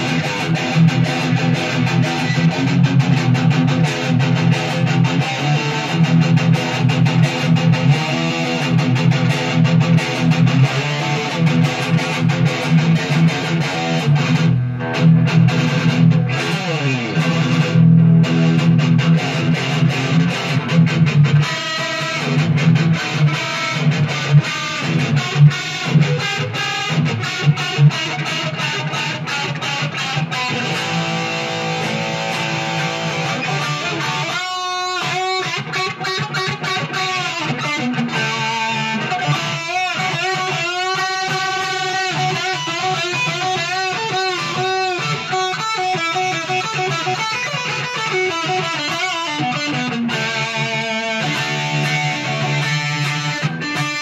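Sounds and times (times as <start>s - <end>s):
amplified electric guitar: 0.0s - 54.0s.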